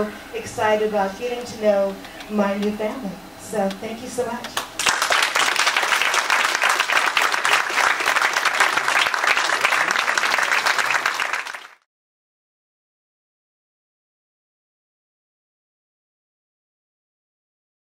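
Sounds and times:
audience applauding: 4.6 - 11.9.

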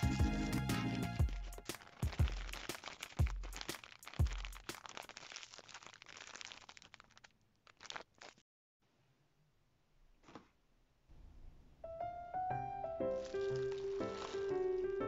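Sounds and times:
plastic bag and cling film crinkling: 0.0 - 8.4, 13.0 - 15.0.

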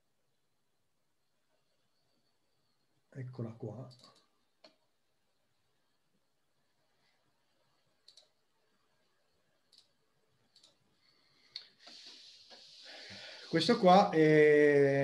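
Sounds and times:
soft hiss: 1.2 - 15.0
computer mouse clicks: 3.8 - 4.8, 8.0 - 8.4, 9.6 - 10.9.

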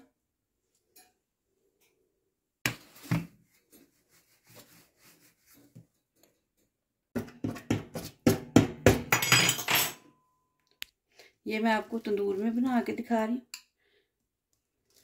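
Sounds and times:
faint handling sounds: 2.8 - 6.8.

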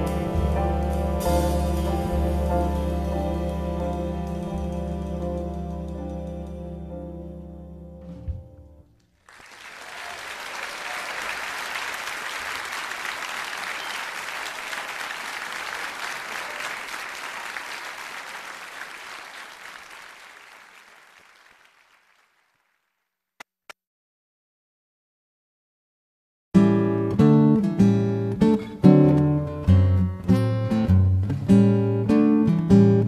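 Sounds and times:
crowd applauding: 9.2 - 22.9.

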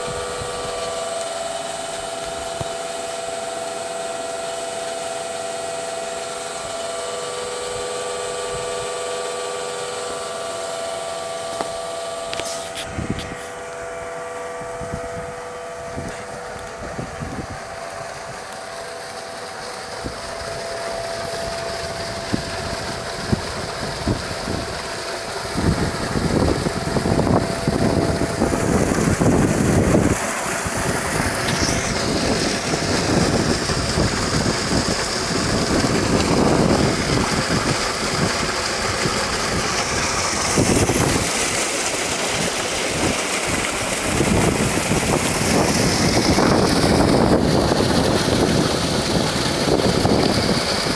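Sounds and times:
water gushing into tank: 0.0 - 50.9
wind buffeting microphone: 15.9 - 18.4, 25.4 - 41.4, 42.9 - 50.9.

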